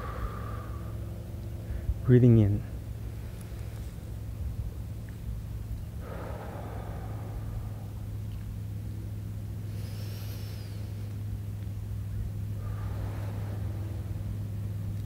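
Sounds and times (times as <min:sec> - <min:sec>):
soft exhale rush: 0:00.0 - 0:01.9, 0:05.9 - 0:08.8, 0:09.6 - 0:11.2, 0:12.4 - 0:15.0
low engine-like hum: 0:00.0 - 0:15.0.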